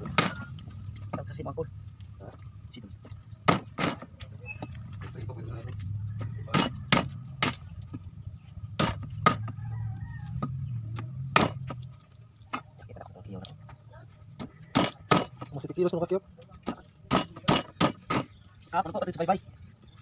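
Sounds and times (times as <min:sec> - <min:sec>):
knife chopping on wooden block: 0:06.5 - 0:07.6.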